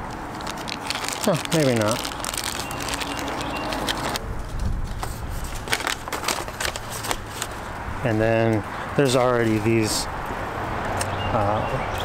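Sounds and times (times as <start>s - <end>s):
plastic bag crinkling: 0.0s - 4.2s, 5.0s - 7.6s
paper sheet rustling: 0.3s - 8.2s.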